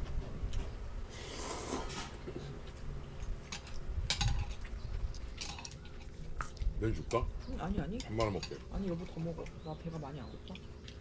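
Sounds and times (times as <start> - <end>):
chopsticks and spoons clinking bowls: 5.4 - 6.2, 7.8 - 9.6.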